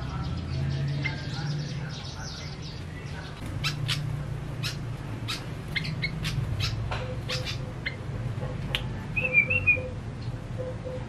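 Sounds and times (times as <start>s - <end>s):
bird bubbly warbled song: 1.0s - 8.1s
steady low hum: 2.5s - 9.2s.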